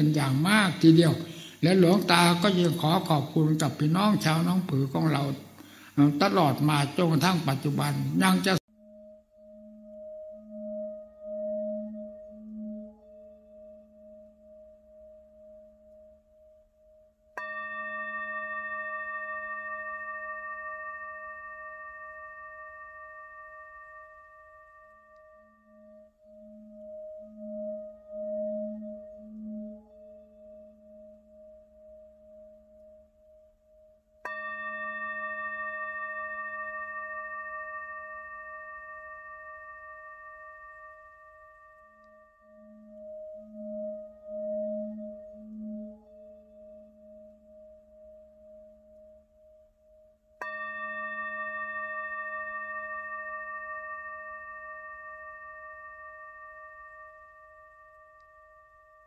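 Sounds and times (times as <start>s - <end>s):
singing bowl ringing: 0.0s - 59.0s.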